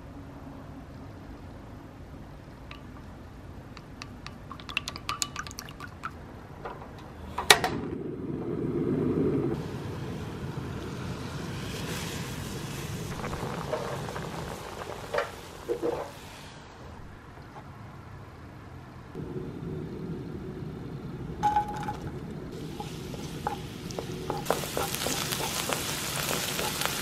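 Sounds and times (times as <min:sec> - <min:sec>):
water boiling: 0:02.5 - 0:06.2, 0:09.6 - 0:17.2, 0:19.4 - 0:27.0
spoon clinking glass bowl: 0:04.0 - 0:05.8
gas burner igniting: 0:06.6 - 0:17.4, 0:19.2 - 0:27.0.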